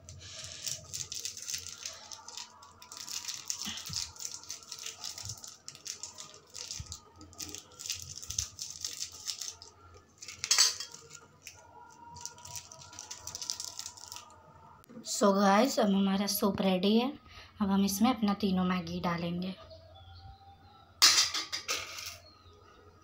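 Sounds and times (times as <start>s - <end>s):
sachets crinkling and rattling: 0.0s - 14.4s.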